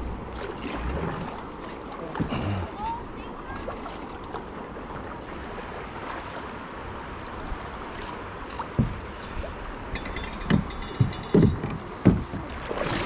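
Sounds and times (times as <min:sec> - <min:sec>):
paddle strokes in water: 0:00.0 - 0:13.0
river current rushing: 0:00.0 - 0:13.0
low knock on kayak hull: 0:08.7 - 0:09.0, 0:10.5 - 0:12.6.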